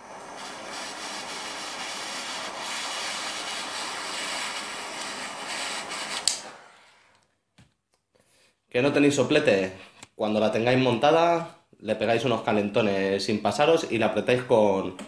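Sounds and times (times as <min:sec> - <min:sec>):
torch flame hissing: 0:00.0 - 0:07.1
lighter click: 0:06.1 - 0:06.5.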